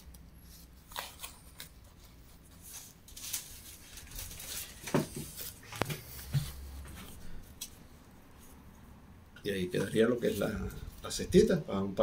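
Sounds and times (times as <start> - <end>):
woven basket rustling: 0.5 - 8.7.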